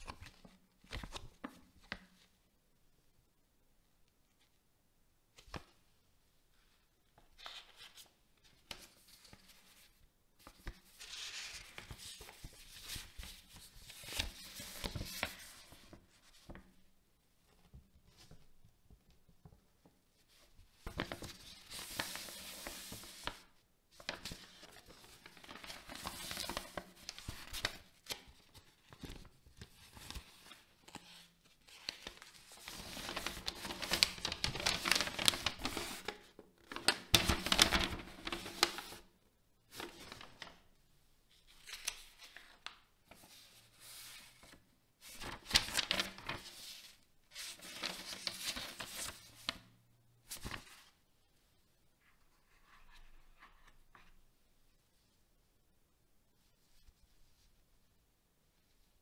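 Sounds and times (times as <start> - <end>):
paper and plastic packaging crinkling: 31.8 - 36.2.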